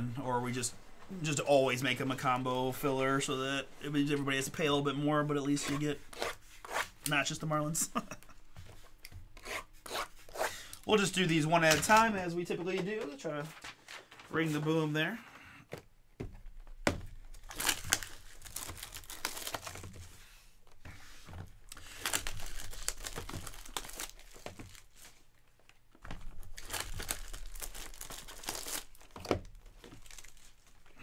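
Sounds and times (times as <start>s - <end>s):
plastic wrapping crinkling and tearing: 17.2s - 20.1s, 21.6s - 31.0s.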